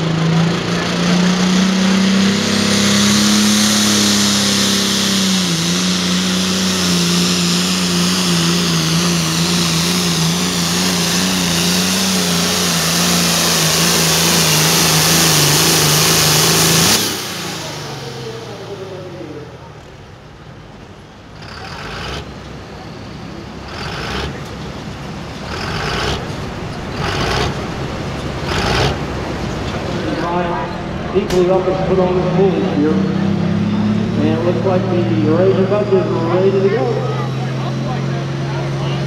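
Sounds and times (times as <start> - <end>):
diesel tractor engine at full throttle: 0.0 - 39.0.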